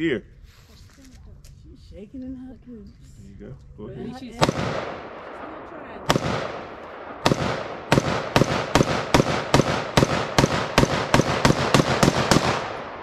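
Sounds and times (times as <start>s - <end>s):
rifle shots with echo: 4.3s - 13.0s.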